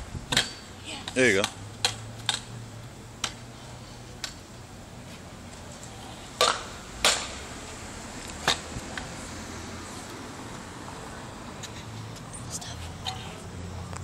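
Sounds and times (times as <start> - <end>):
scooter clacking on concrete: 5.6 - 7.4.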